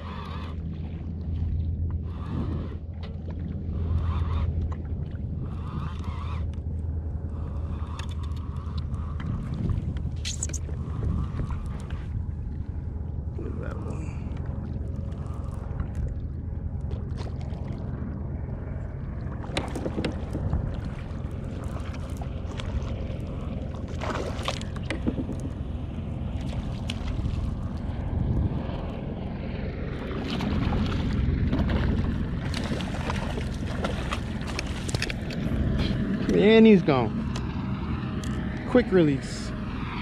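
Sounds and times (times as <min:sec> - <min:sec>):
water moving around kayak: 0:00.0 - 0:40.0
wind noise on microphone: 0:02.0 - 0:02.9, 0:07.3 - 0:12.7, 0:27.0 - 0:34.0
fish thrashing in water: 0:18.7 - 0:28.2, 0:29.9 - 0:36.0.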